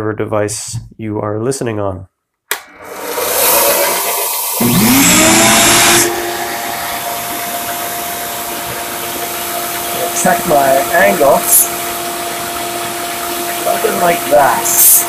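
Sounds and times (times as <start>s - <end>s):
belt sander motor whine: 2.6s - 11.4s
shop vacuum rushing air: 2.6s - 15.0s.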